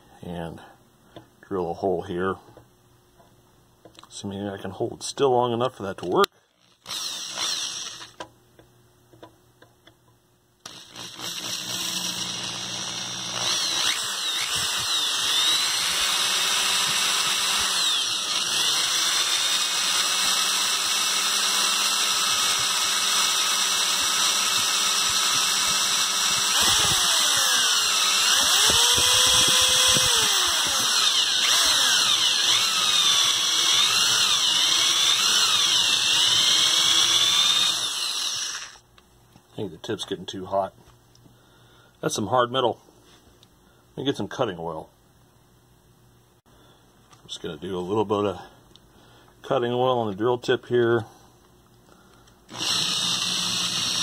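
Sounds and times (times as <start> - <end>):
power drill boring into metal: 6.6 - 8.2, 10.6 - 38.8, 52.5 - 54.0
high whine of drill bit: 6.9 - 8.2, 10.7 - 38.8, 52.5 - 54.0.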